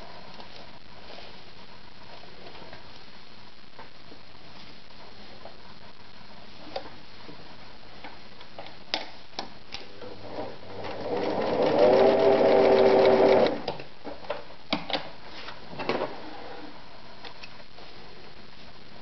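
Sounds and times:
sewing machine stitching leather: 0:10.2 - 0:13.7.

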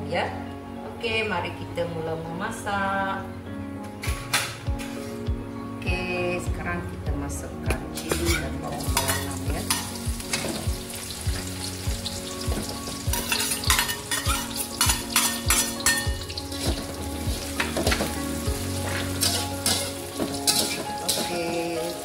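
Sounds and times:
metal spatula scraping wok: 0:04.2 - 0:05.3, 0:08.0 - 0:11.5, 0:13.0 - 0:16.7, 0:17.4 - 0:22.0
chillies sizzling in hot oil: 0:07.9 - 0:22.0.

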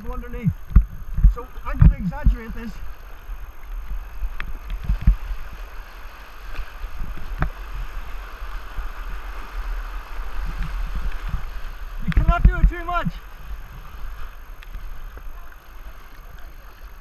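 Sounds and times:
low rumble: 0:00.0 - 0:05.5.

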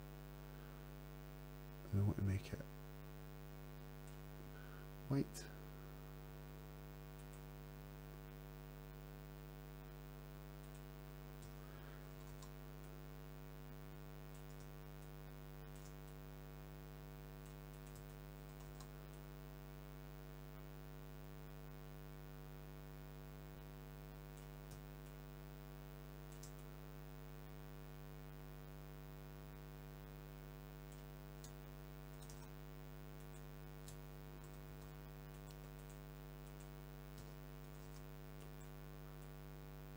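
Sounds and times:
electrical mains hum: 0:00.0 - 0:39.9
computer mouse clicks: 0:07.1 - 0:07.5, 0:10.6 - 0:13.0, 0:14.3 - 0:15.1, 0:15.7 - 0:16.2, 0:17.4 - 0:19.2, 0:24.4 - 0:25.2, 0:26.3 - 0:26.7, 0:30.9 - 0:32.6, 0:33.2 - 0:39.4.

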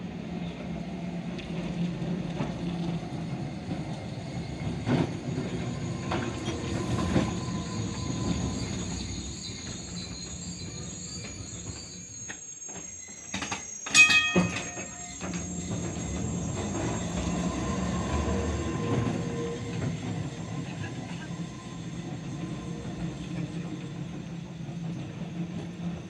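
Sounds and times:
tram wheels rumbling: 0:00.0 - 0:26.0
metallic clang: 0:13.8 - 0:15.4
tram motor hum: 0:14.1 - 0:26.0.

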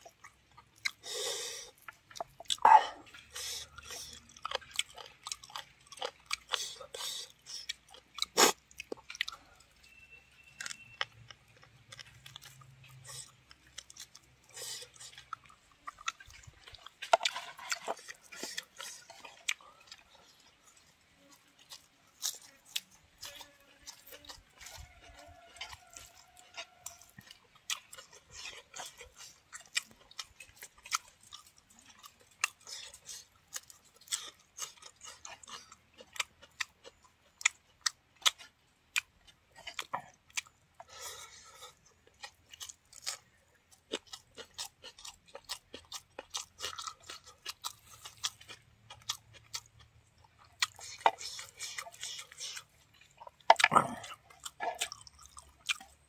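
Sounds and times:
close-up chewing: 0:00.0 - 0:56.0.

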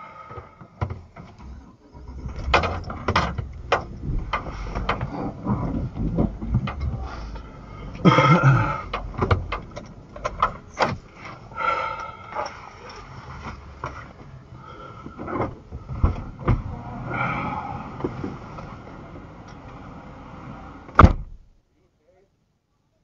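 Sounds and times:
low engine rumble: 0:00.0 - 0:21.9
knocks and clicks in car cabin: 0:00.3 - 0:01.6, 0:02.2 - 0:14.3, 0:20.9 - 0:21.5.

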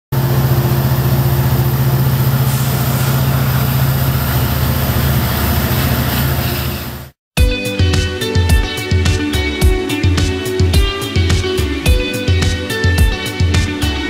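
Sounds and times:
diesel locomotive engine running: 0:00.1 - 0:07.2.

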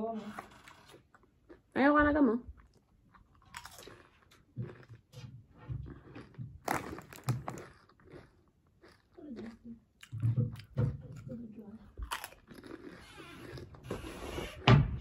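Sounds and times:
person crunching potato chips: 0:02.6 - 0:05.1, 0:05.9 - 0:10.2, 0:12.0 - 0:13.9.

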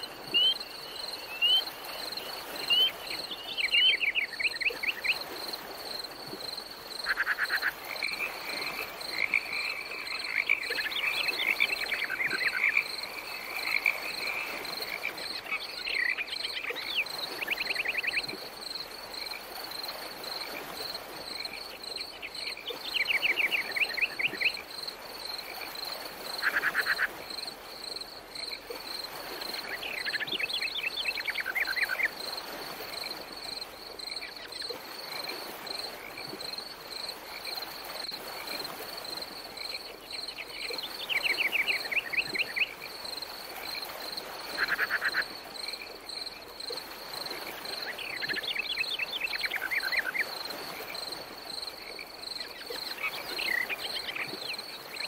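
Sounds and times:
crickets chirping: 0:00.0 - 0:55.0.

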